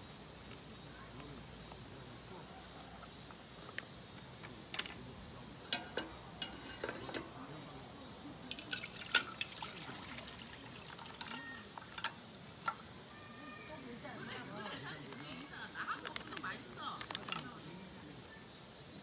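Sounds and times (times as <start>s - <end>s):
liquid pouring into metal pot: 5.6s - 7.4s, 8.5s - 12.9s
small clicks and splashes: 5.6s - 7.4s, 8.4s - 13.0s, 15.1s - 17.6s.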